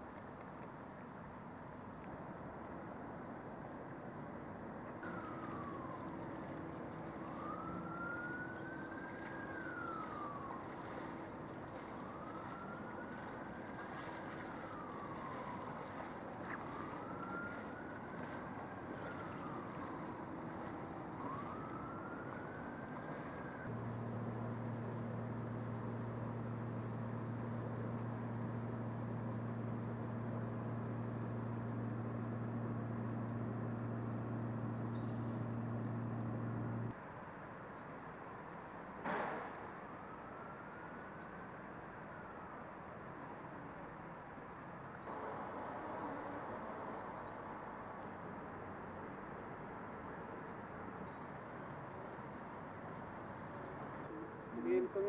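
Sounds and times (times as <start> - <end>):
emergency siren wailing: 5.0 - 37.0
steady background wash: 5.0 - 37.0
steady low hum: 10.8 - 36.9.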